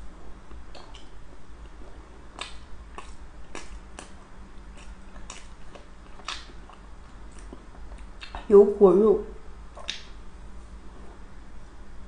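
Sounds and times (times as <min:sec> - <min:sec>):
crunchy chewing clicks: 0:00.4 - 0:08.5, 0:09.7 - 0:10.2.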